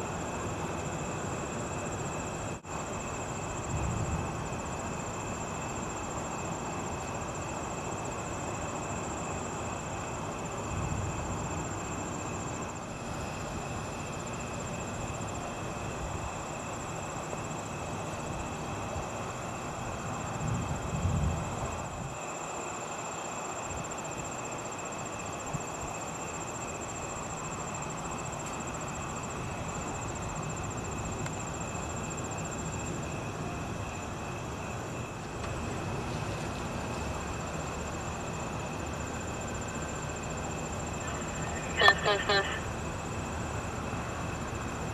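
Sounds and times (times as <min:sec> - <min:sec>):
high insect trill: 0:00.0 - 0:44.9
steady hiss: 0:00.0 - 0:44.9.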